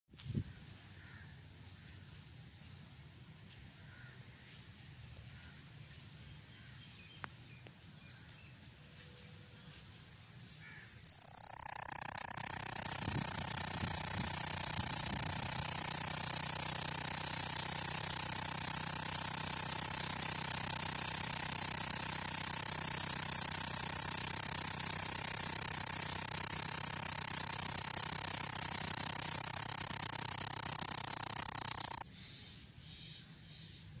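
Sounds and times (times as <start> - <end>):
cicada buzzing: 10.7 - 32.1.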